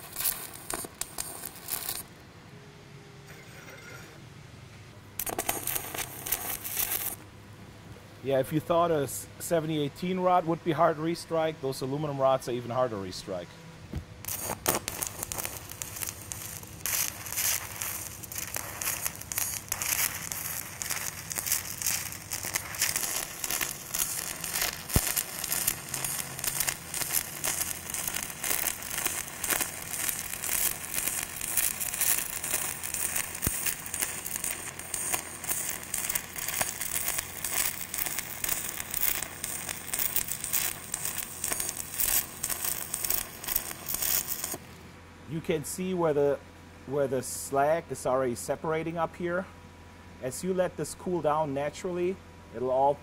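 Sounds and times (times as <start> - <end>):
welding arc crackling: 0.0 - 2.2, 5.2 - 7.2, 14.2 - 44.8.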